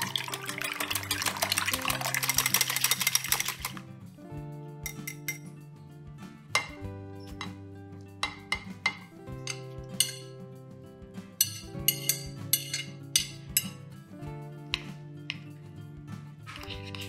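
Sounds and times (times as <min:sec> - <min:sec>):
soft background music: 0:00.0 - 0:17.0
metal spoon clinking on china: 0:04.9 - 0:05.5, 0:08.2 - 0:10.3, 0:11.4 - 0:13.8.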